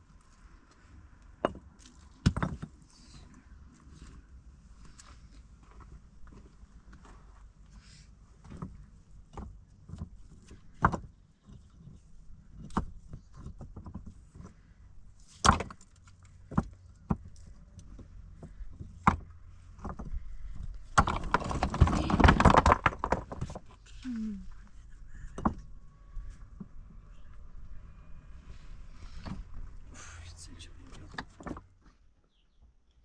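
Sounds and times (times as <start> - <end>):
stones scraping and rattling: 8.4 - 23.9.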